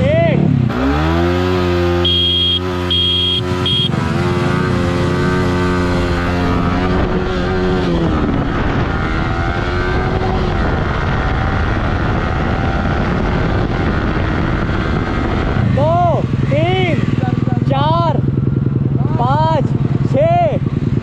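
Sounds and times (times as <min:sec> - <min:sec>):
motorcycle engine accelerating: 0:00.3 - 0:21.0
short high beeps: 0:02.0 - 0:04.0
wind noise: 0:03.4 - 0:21.0.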